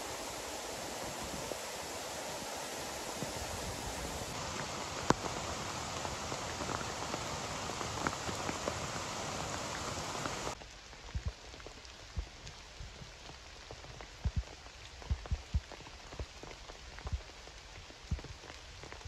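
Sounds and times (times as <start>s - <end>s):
stream rushing over rocks: 0.0s - 10.6s
rain pattering: 0.0s - 19.0s
soft footsteps on wet path: 0.0s - 19.0s.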